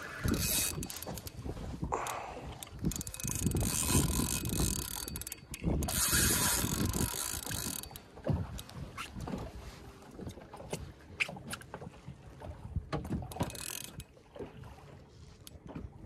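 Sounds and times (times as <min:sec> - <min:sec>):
fishing reel clicking and whirring: 0:00.0 - 0:08.7, 0:13.3 - 0:14.1.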